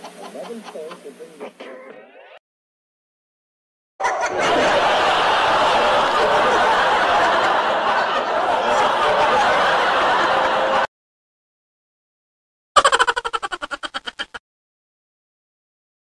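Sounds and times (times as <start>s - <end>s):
crowd laughing and shouting: 4.0s - 10.9s.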